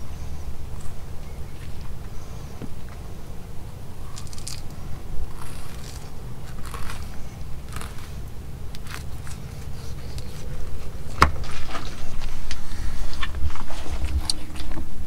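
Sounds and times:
low rumble: 0.0s - 14.7s
knife scraping fish bones: 4.2s - 10.5s.

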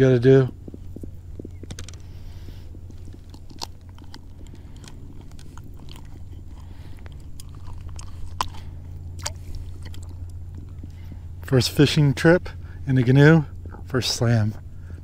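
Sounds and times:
steady low hum: 0.0s - 15.0s
handling clicks and crackles: 0.3s - 11.1s.

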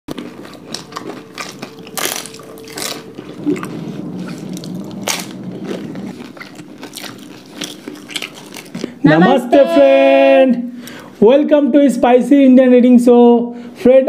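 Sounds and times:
crunching crisp food: 0.1s - 9.0s
wet squishing while eating: 0.1s - 9.0s
low steady hum: 0.1s - 11.2s.

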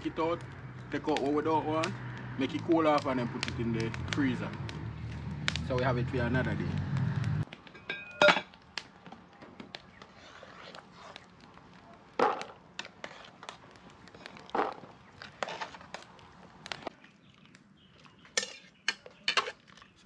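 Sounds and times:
spoon scraping a metal pot: 12.8s - 13.6s, 18.4s - 19.6s.

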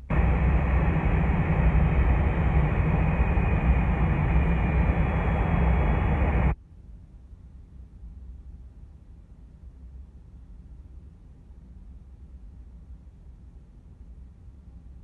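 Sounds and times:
deep rumble: 0.0s - 6.6s
jet cabin engine noise: 0.0s - 6.6s.

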